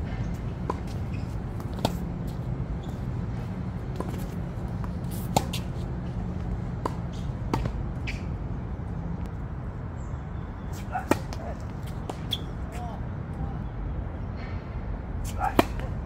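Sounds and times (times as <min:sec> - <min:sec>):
tennis balls struck by rackets: 0:00.2 - 0:03.1, 0:03.8 - 0:08.5, 0:10.8 - 0:12.5, 0:15.2 - 0:16.0.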